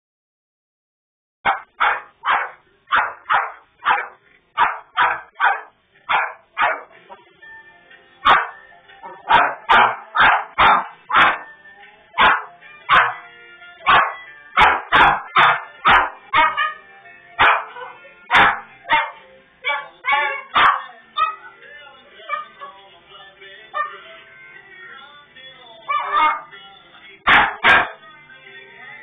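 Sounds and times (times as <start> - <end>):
dog barking: 1.4 - 6.9, 8.2 - 11.5, 12.2 - 13.2, 13.8 - 16.8, 17.4 - 21.5, 22.3 - 22.7, 23.8 - 24.0, 25.9 - 26.5, 27.3 - 28.0.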